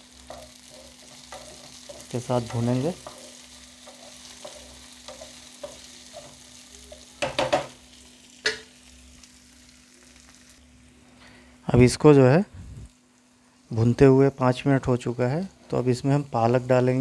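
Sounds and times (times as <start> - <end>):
food sizzling in pan: 0.0 - 17.0
wooden spatula tapping pan: 3.9 - 7.8.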